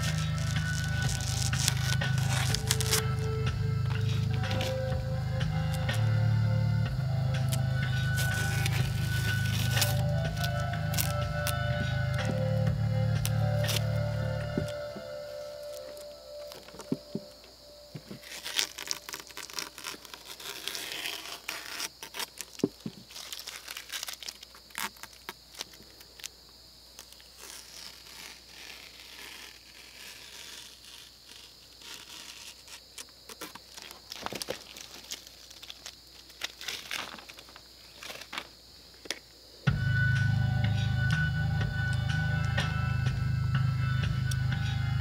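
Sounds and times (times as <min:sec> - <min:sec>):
paper crinkling and tearing: 0:00.0 - 0:06.2, 0:07.3 - 0:17.2, 0:18.0 - 0:26.3, 0:27.0 - 0:38.6
faint high whine: 0:00.0 - 0:22.2, 0:34.0 - 0:45.0.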